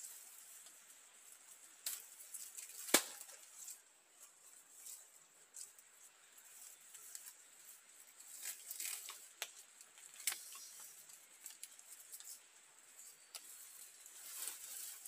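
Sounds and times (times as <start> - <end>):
palm leaves rustling: 0.0 - 15.0
sharp snaps: 1.8 - 3.4.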